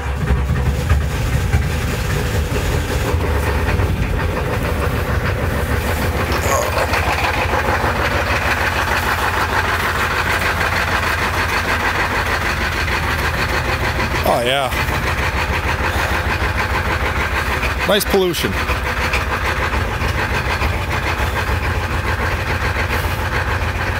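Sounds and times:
diesel engine idling: 0.0 - 23.9.

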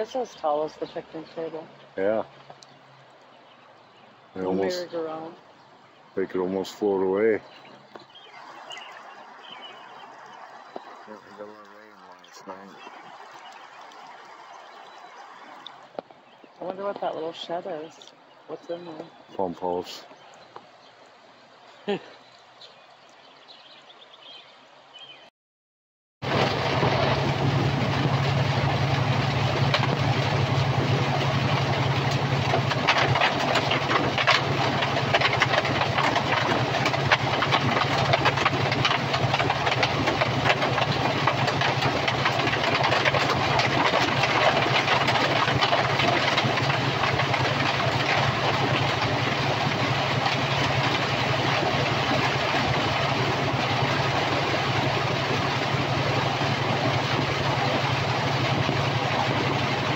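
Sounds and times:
diesel engine drone: 26.2 - 59.9
heavy rain on windshield: 26.2 - 59.9.

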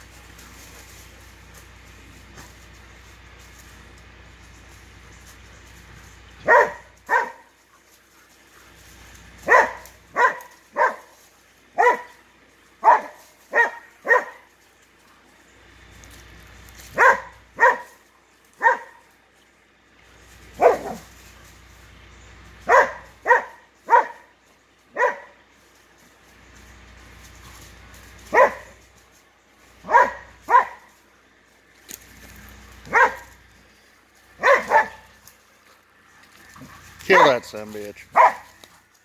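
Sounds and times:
dog barking: 6.4 - 7.5, 9.4 - 12.2, 12.8 - 14.5, 16.9 - 18.0, 18.6 - 19.1, 20.6 - 21.1, 22.6 - 24.3, 24.9 - 25.4, 28.3 - 28.8, 29.8 - 30.9, 32.9 - 33.4, 34.4 - 35.2, 37.1 - 37.5, 38.1 - 38.6.

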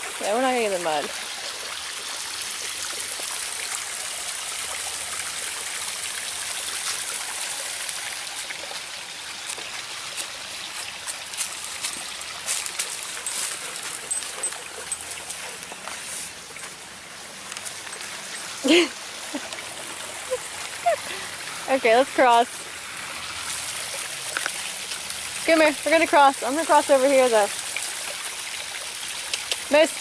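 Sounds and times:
stream trickling over rocks: 0.0 - 30.0
footsteps crunching dry leaves: 9.4 - 14.0
dog's paws crunching leaves: 9.4 - 18.9.

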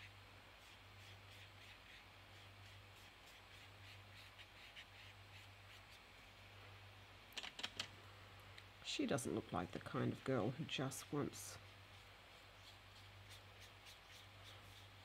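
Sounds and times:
brush strokes on paper: 0.0 - 6.5, 11.1 - 15.0
steady low hum: 0.0 - 15.0.

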